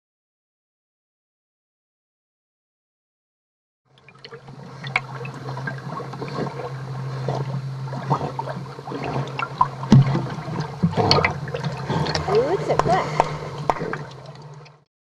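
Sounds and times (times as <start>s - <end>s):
low steady hum: 3.9s - 14.8s
water sloshing and gurgling: 3.9s - 14.9s
small splashes and clicks: 7.3s - 14.8s.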